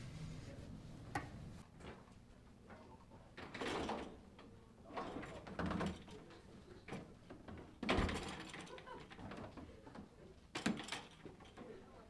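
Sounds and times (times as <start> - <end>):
people shuffling and walking: 0.0 - 1.7.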